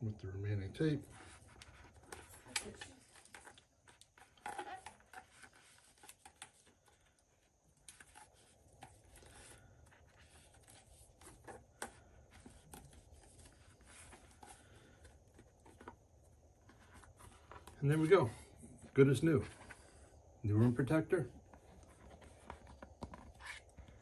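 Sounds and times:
rustling of grip wrap: 0.9 - 18.1, 21.4 - 24.0.

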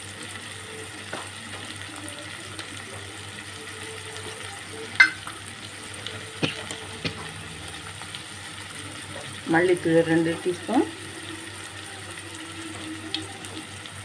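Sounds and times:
vegetables sizzling in oil: 0.0 - 14.0
wooden spatula knocking on pan: 5.0 - 5.3.

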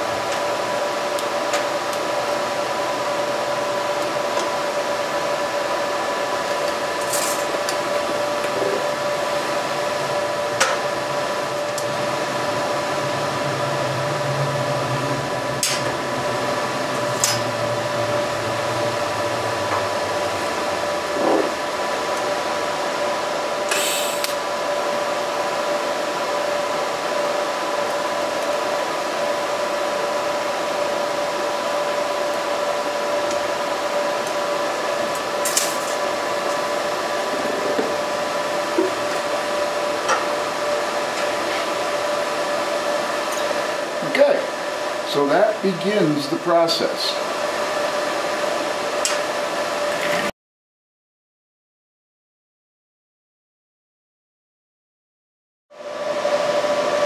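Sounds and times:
welding hiss: 6.6 - 8.6, 23.6 - 24.5
welding crackles: 32.1 - 38.1.

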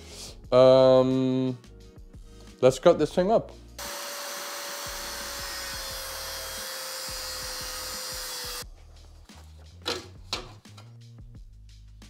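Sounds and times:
angle grinder cutting sheet steel: 3.8 - 8.6.

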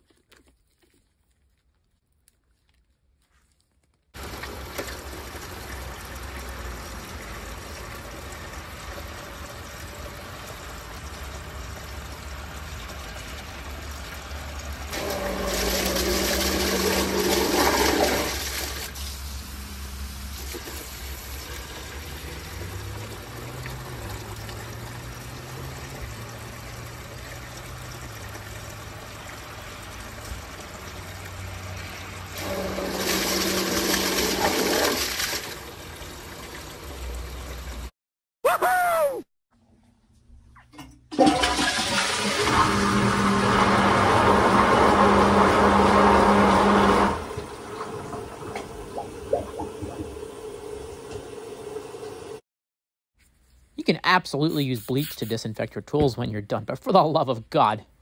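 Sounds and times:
water rushing into pump: 4.2 - 37.9, 40.7 - 52.4.

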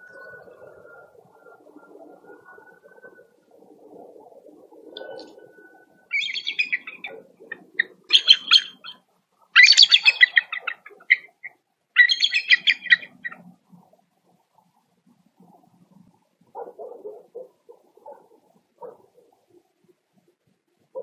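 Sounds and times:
eagles chattering calls: 6.1 - 13.5.

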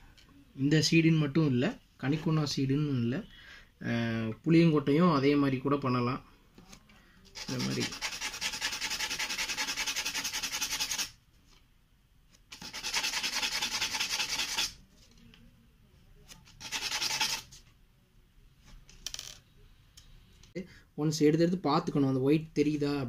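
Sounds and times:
seed rasping on sandpaper: 7.4 - 11.1, 12.5 - 14.8, 16.6 - 17.5.

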